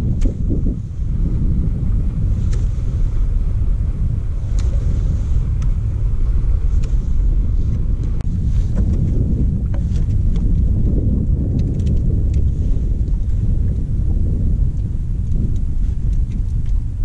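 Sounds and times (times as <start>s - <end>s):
wind buffeting microphone: 0.0s - 17.0s
faint light clicks: 5.6s - 5.8s.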